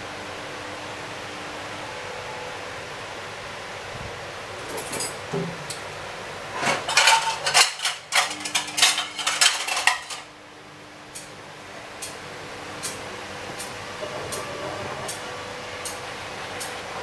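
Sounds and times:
metal spoon and cookware clattering: 6.6 - 10.3.

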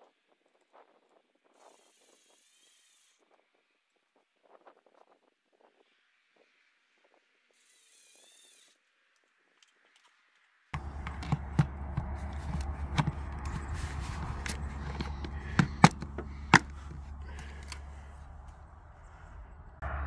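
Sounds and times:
plastic camera clicks and knocks: 10.8 - 17.8
steady low rumble: 10.8 - 20.0.

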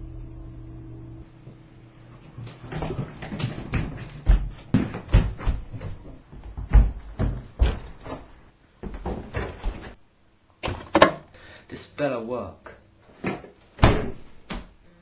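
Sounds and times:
heavy running footsteps: 2.4 - 10.0.

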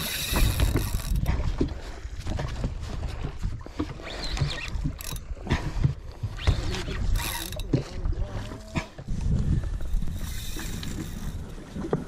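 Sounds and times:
fishing reel clicking: 0.0 - 1.3, 4.2 - 5.2, 6.4 - 7.8, 9.7 - 11.5.

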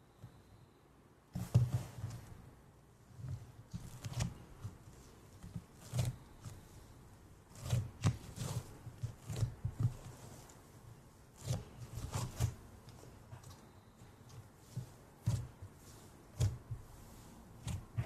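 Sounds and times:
slime crackling and squishing: 3.7 - 18.0.

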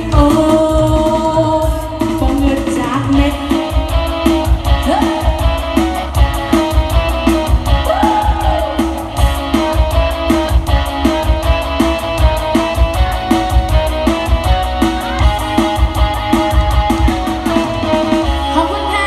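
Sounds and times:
loud dance music: 0.0 - 19.0
person singing: 4.6 - 5.8.

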